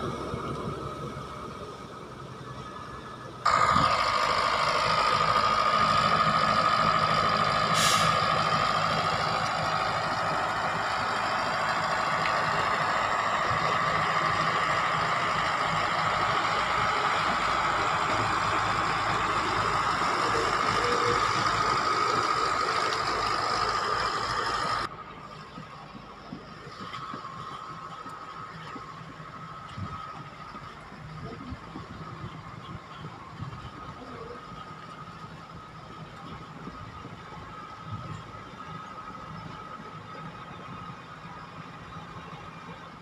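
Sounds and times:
heavy machinery engine drone: 0.0s - 43.0s.

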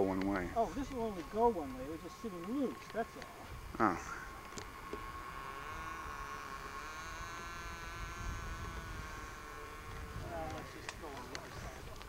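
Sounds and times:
high-pitched hum: 0.0s - 12.0s
wavering droning tone: 0.0s - 12.0s.

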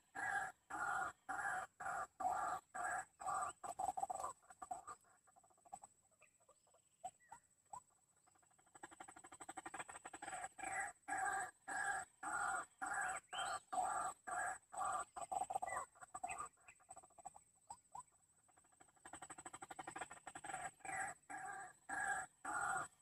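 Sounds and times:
waterhen calling: 19.8s - 23.0s.

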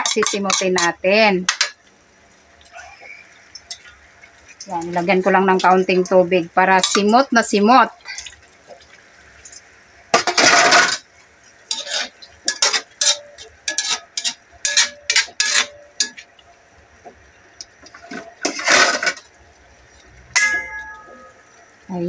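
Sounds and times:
metal spoon scraping a wok: 0.0s - 0.9s, 11.7s - 16.2s, 18.4s - 19.3s.

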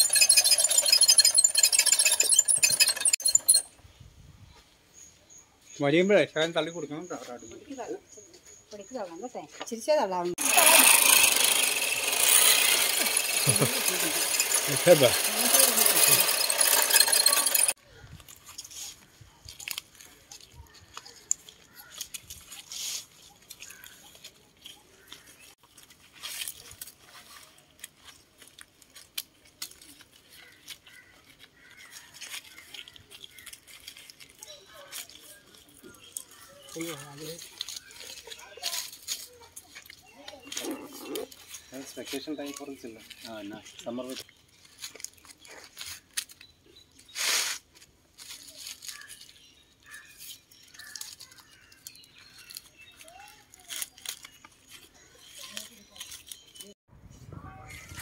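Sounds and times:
palm leaves crackling and rustling: 18.0s - 56.8s.

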